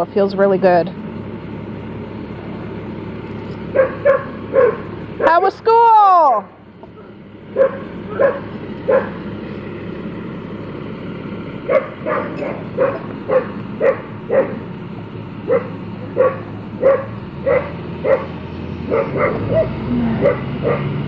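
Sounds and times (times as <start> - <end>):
bus engine rumbling: 0.0 - 21.0
dogs barking: 3.7 - 5.4, 6.9 - 9.3, 11.6 - 14.8, 15.4 - 21.0.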